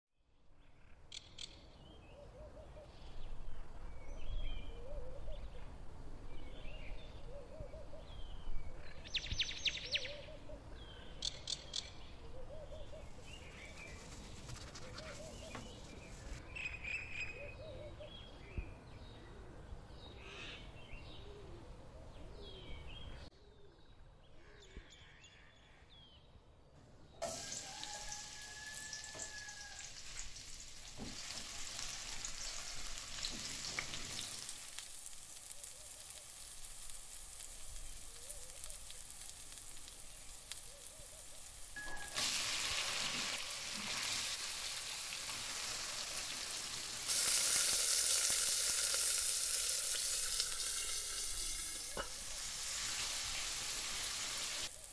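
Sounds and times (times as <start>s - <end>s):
birds chirping: 6.4s - 18.6s
garlic sizzling in hot oil: 12.5s - 16.4s, 27.2s - 54.9s.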